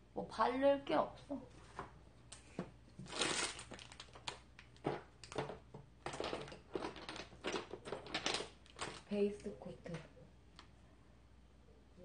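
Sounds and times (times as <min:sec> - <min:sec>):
small bottles clattering and rustling: 0:03.0 - 0:09.1.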